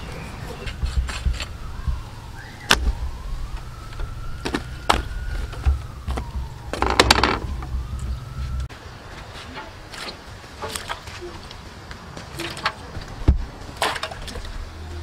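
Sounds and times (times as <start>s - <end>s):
low rumble: 0.0s - 8.7s.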